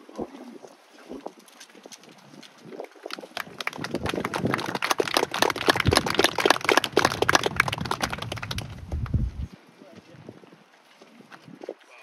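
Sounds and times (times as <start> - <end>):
audience applauding: 3.0 - 9.4.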